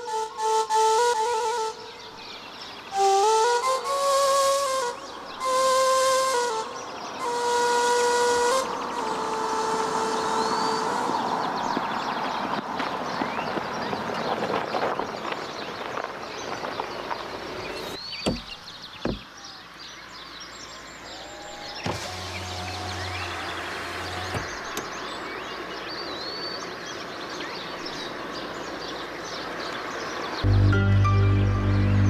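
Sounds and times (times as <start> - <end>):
background hiss: 0.0 - 11.8
sharp knocks: 18.2 - 19.3.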